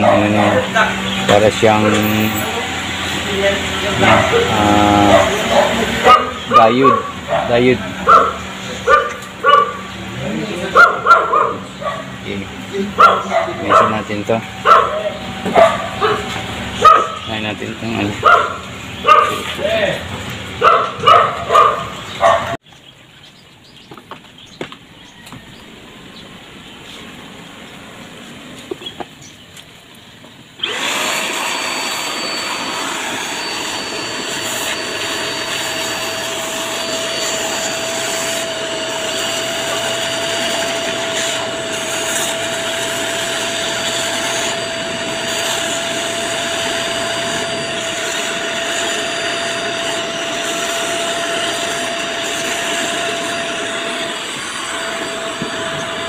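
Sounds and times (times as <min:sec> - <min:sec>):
vacuum cleaner running: 0:00.0 - 0:22.6, 0:30.6 - 0:56.0
vacuum cleaner switching on: 0:12.3 - 0:21.7, 0:30.6 - 0:56.0.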